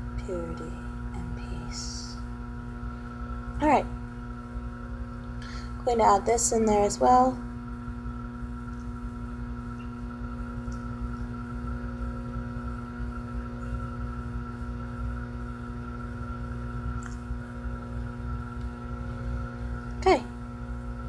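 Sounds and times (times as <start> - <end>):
electrical hum: 0.0 - 21.0
faint small clicks: 10.7 - 10.9, 17.0 - 17.2.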